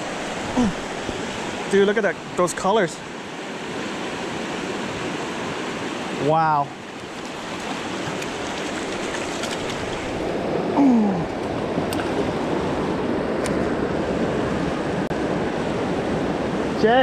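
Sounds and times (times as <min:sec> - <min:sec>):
river rushing over rocks: 0:00.0 - 0:10.5.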